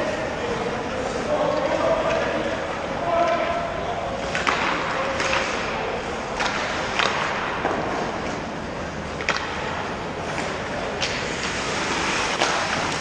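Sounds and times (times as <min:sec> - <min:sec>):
hockey sticks and puck clacking: 0:00.0 - 0:13.0
skate blades hissing on ice: 0:11.1 - 0:13.0.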